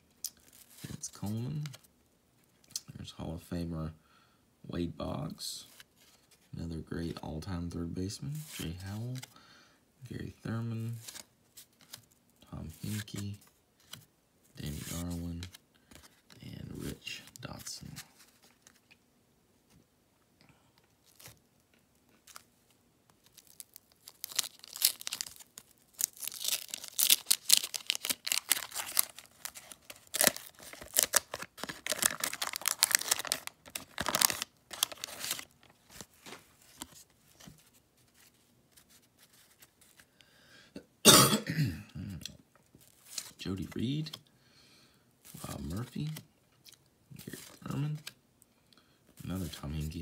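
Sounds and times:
faint paper rustles: 0:10.6 - 0:19.0, 0:22.1 - 0:40.1
wax paper tearing and crumpling: 0:23.2 - 0:36.1.

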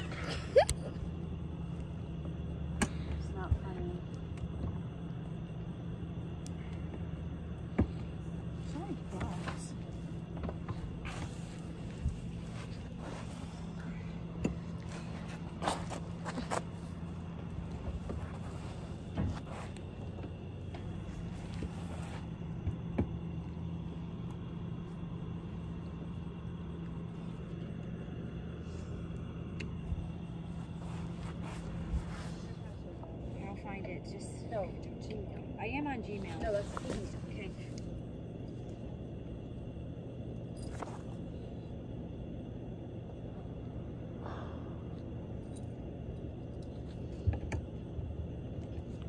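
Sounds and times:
faint high whine: 0:00.0 - 0:49.0
low mechanical hum: 0:00.0 - 0:49.0
soft breath: 0:44.2 - 0:45.0.

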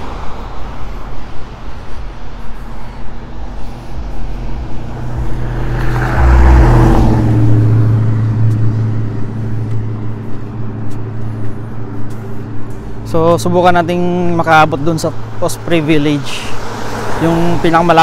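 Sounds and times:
car tyres hissing on snow: 0:00.0 - 0:13.1
car engine hum: 0:00.0 - 0:18.0.

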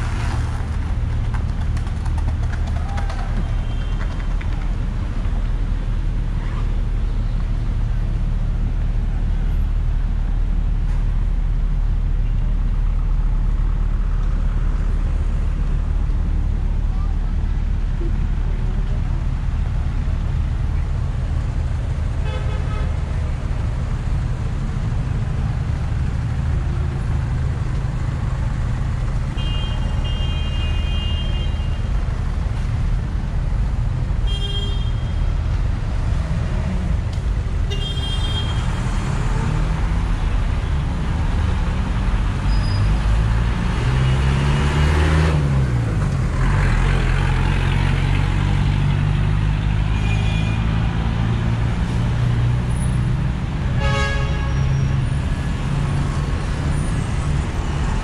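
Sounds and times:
traffic rumble: 0:00.0 - 0:58.0
car horns tooting: 0:53.8 - 0:54.8.

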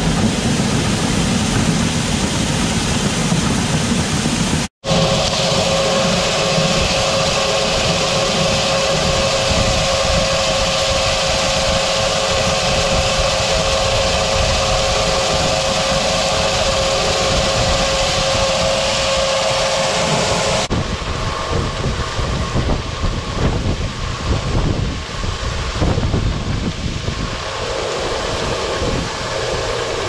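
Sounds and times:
grain auger running: 0:00.0 - 0:20.7, 0:27.2 - 0:30.0
wind on microphone: 0:00.0 - 0:30.0.

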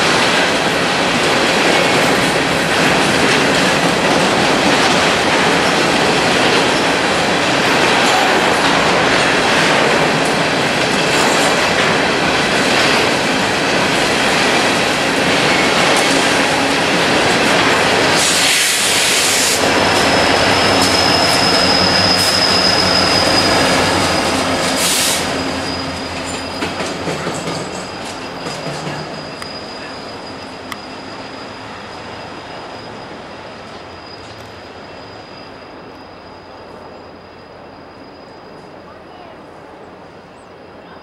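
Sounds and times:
train wheels clattering on rails: 0:00.0 - 0:33.0
diesel locomotive passing: 0:00.0 - 0:41.0
high-pitched wheel squeal: 0:18.3 - 0:26.9, 0:28.3 - 0:39.0.

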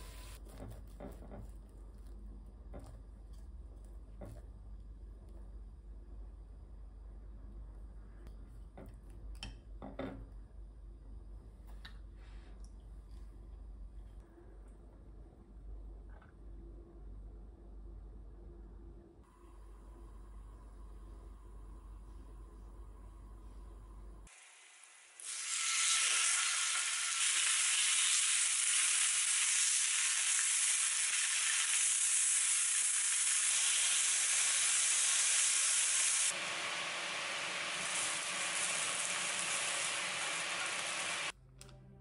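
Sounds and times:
vegetables frying in a pan: 0:24.3 - 0:41.3
meat sizzling in a frying pan: 0:24.5 - 0:41.3.

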